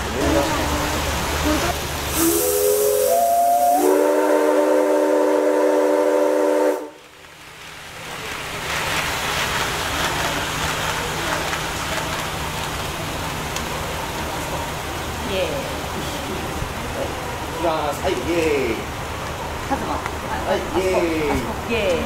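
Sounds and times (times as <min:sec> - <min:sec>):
steady hiss: 0:00.0 - 0:22.0
train whistle chord: 0:02.1 - 0:07.0.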